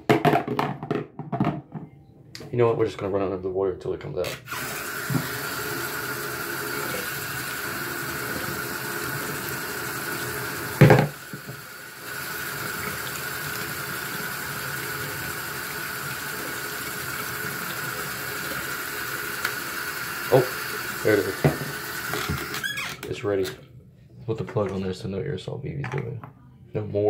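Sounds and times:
tap water pouring and splashing: 4.9s - 22.7s.

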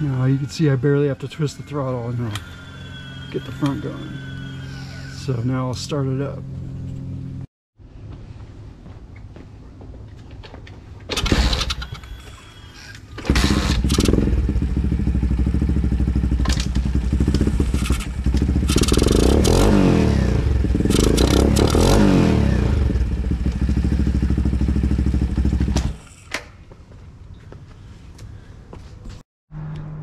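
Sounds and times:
motorbike engine starting and revving: 1.2s - 5.4s, 11.1s - 12.4s, 13.1s - 26.3s.

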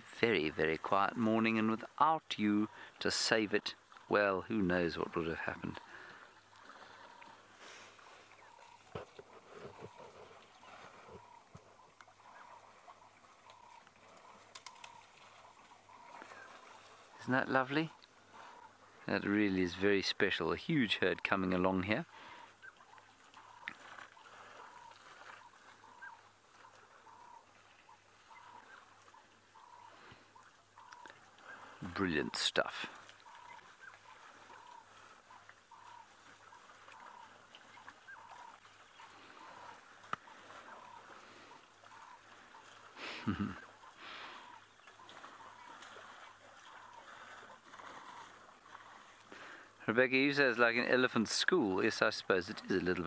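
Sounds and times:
bird calling faintly: 3.8s - 53.0s
background hiss: 5.5s - 11.7s, 42.9s - 44.6s.

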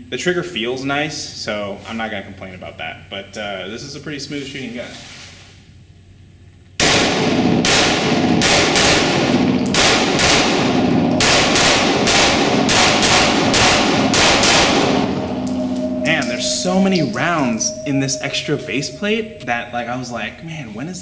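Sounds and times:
pistol shots echoing indoors: 6.8s - 15.4s.

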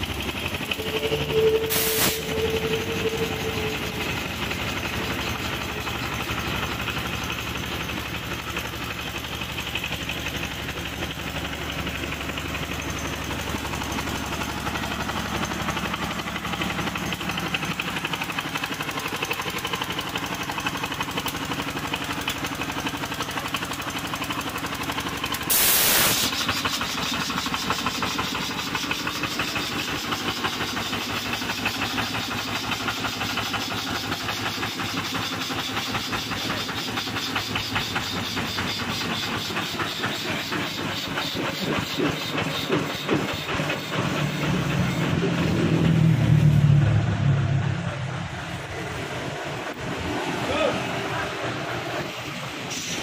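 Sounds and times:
diesel engine running: 0.0s - 53.0s
loud hiss of air: 1.2s - 3.3s, 25.4s - 26.7s, 52.6s - 53.0s.

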